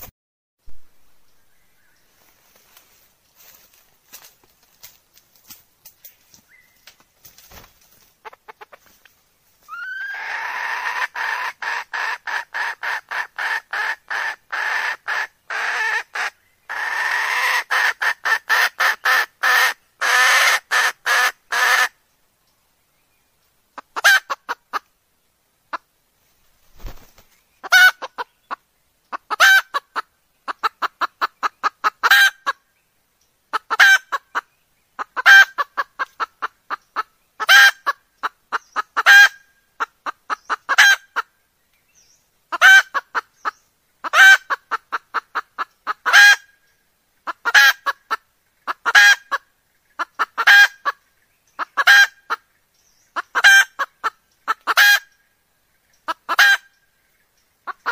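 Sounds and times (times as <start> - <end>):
hen clucking: 7.5 - 9.0, 9.7 - 22.0, 23.8 - 24.9, 26.8 - 32.6, 33.5 - 41.3, 42.5 - 46.6, 47.2 - 51.0, 51.6 - 55.2, 55.9 - 56.8, 57.6 - 57.9.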